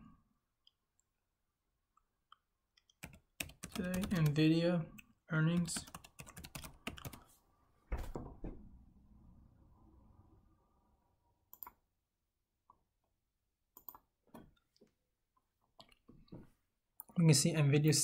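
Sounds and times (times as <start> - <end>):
computer keyboard typing: 2.9 - 4.5, 5.5 - 7.2.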